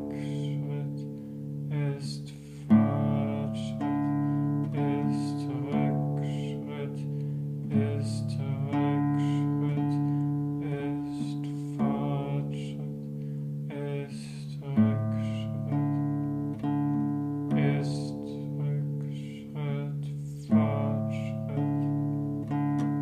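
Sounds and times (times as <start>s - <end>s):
classical guitar chords: 0.0s - 23.0s.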